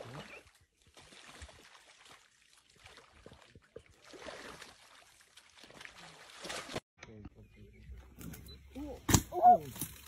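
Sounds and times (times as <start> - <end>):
lions lapping water: 0.0 - 6.8.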